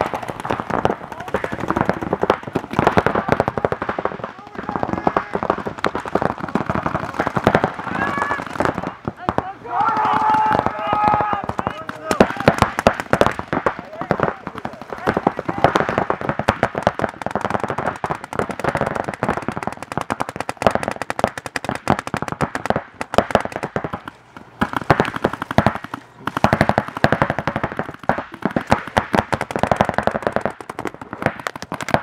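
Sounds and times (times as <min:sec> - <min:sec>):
paintball markers firing: 0:00.0 - 0:32.0.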